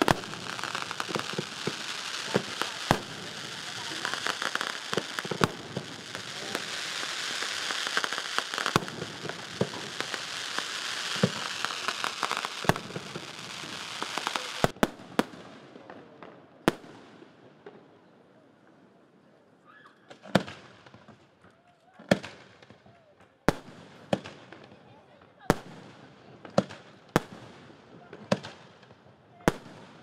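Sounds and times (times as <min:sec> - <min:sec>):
fireworks bangs: 0:00.0 - 0:17.2
fireworks crackling: 0:00.0 - 0:17.4.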